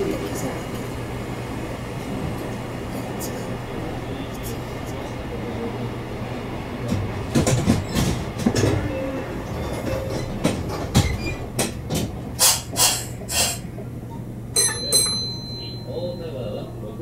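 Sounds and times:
electric train hum: 0.0s - 17.0s
wheels clacking over rail joints: 6.8s - 15.6s
short high chime: 14.6s - 16.4s.

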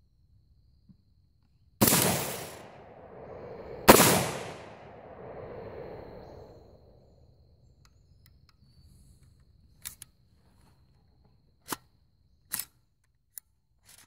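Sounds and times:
rifle shot echo: 1.8s - 6.9s.

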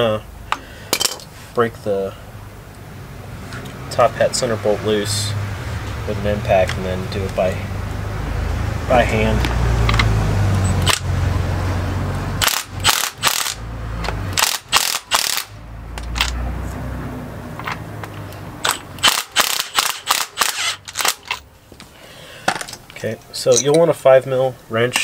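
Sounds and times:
impact wrench bursts: 12.4s - 13.6s, 14.3s - 16.4s, 18.6s - 21.4s.

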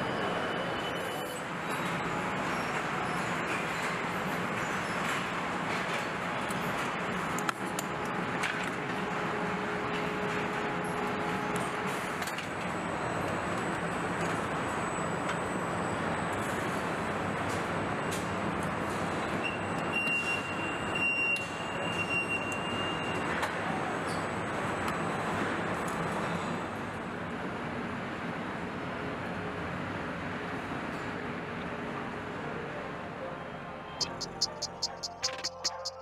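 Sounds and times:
factory machinery hum: 0.0s - 21.9s
high-pitched whine: 34.0s - 36.0s.

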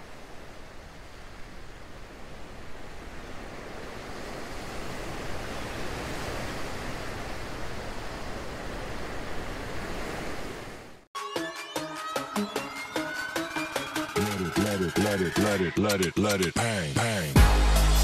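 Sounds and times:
water rushing like surf: 0.0s - 11.1s.

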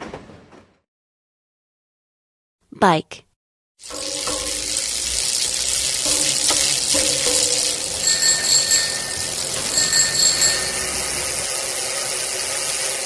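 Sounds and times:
bicycle bell ringing: 3.8s - 11.8s
bicycle rushing noise with clicks: 3.8s - 13.0s.

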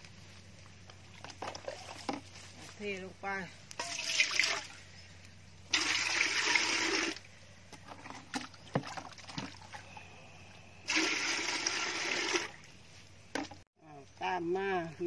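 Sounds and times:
water pouring into metal pot: 3.8s - 4.7s, 5.7s - 7.2s.

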